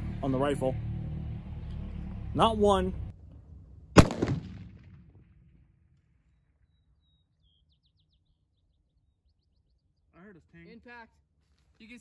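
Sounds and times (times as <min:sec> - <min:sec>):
rifle shot echoing: 0:03.9 - 0:05.8
faint bird chirps: 0:06.3 - 0:10.4.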